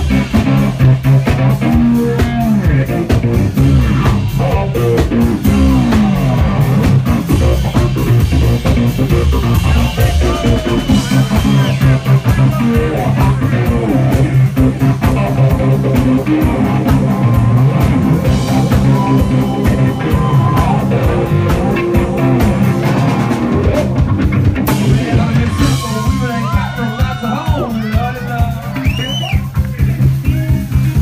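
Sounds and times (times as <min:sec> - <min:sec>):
electric guitar lead: 0:00.0 - 0:28.9
bass guitar: 0:00.0 - 0:31.0
drum kit beat: 0:00.0 - 0:31.0.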